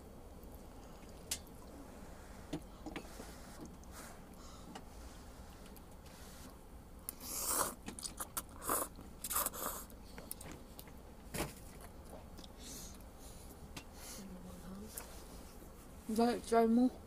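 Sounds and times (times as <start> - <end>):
person slurping noodles: 7.1 - 9.9.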